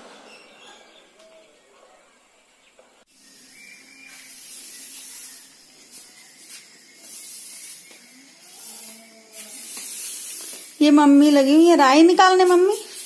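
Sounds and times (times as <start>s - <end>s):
dry stalks swishing on concrete: 3.6s - 13.0s.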